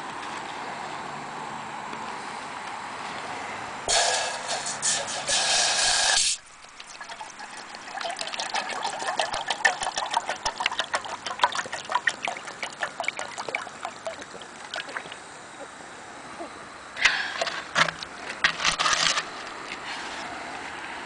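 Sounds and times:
water pouring into kettle: 0:06.4 - 0:15.2
water splashing trickle: 0:06.4 - 0:15.3.

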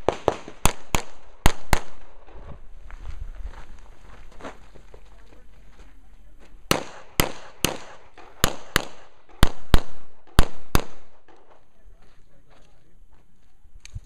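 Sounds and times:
handgun shots: 0:06.7 - 0:11.4.

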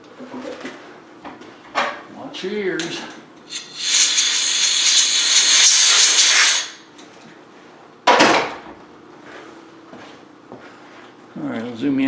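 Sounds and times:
compressed air blow gun hissing: 0:03.5 - 0:06.8.

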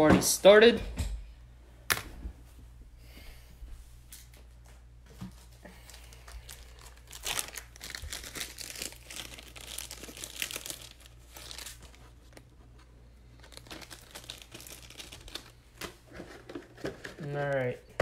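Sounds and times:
plastic packaging crinkling: 0:05.8 - 0:17.8.

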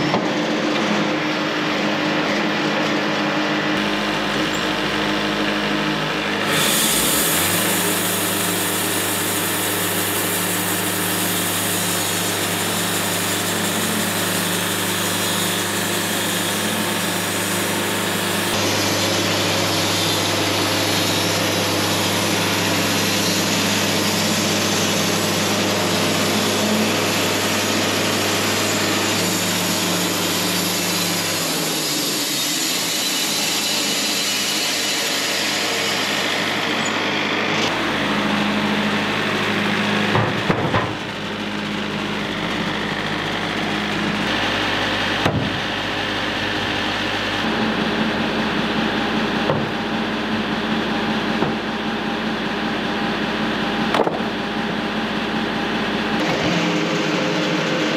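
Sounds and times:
machine hum: 0:03.4 - 0:20.3, 0:36.8 - 0:57.9
bandsaw cutting log: 0:03.8 - 0:57.9.

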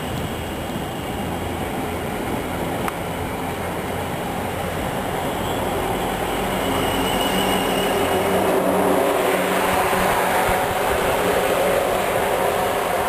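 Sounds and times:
wind buffeting microphone: 0:07.6 - 0:13.0.

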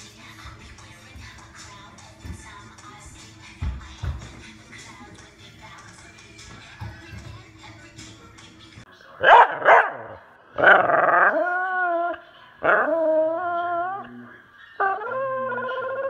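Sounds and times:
dog howling: 0:10.7 - 0:16.0.

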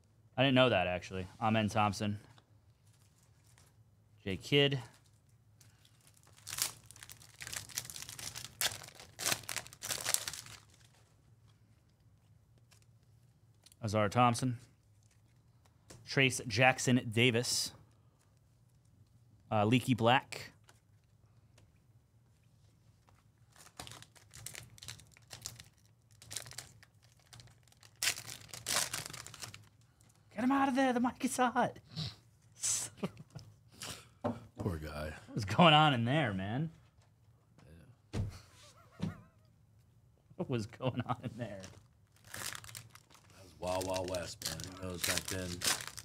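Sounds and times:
card pack wrapper crinkling and tearing: 0:05.7 - 0:11.0, 0:23.5 - 0:29.8, 0:41.5 - 0:46.0.

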